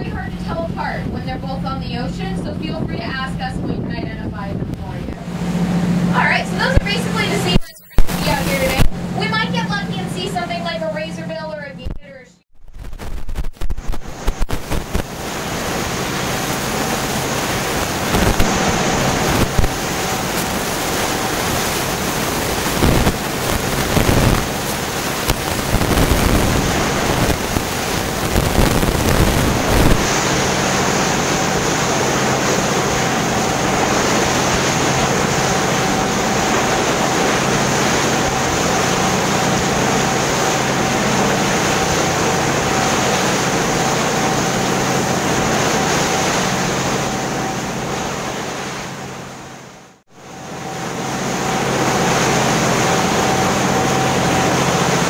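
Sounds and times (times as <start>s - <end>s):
wind buffeting microphone: 0.0s - 9.8s, 13.7s - 42.9s
boat engine hum: 0.0s - 11.8s, 13.8s - 55.0s
rushing water: 13.7s - 55.0s.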